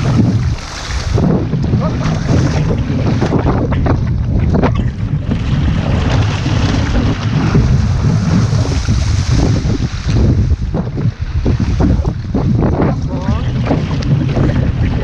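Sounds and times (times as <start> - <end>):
water splashing along canoe hull: 0.0 - 15.0
wind buffeting microphone: 0.0 - 15.0.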